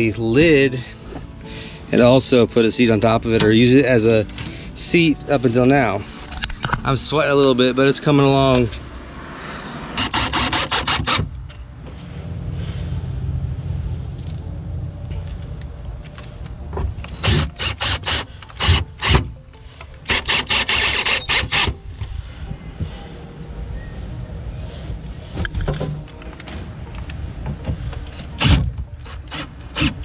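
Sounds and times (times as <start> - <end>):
low drone: 11.5 - 17.3, 18.2 - 30.0
cordless drill driving screws: 17.0 - 19.3, 20.1 - 21.8, 28.2 - 30.0.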